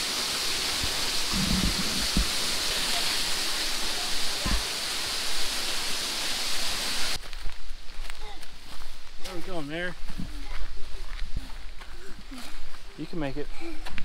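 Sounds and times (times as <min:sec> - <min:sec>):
waterfall rushing: 0:00.0 - 0:07.2.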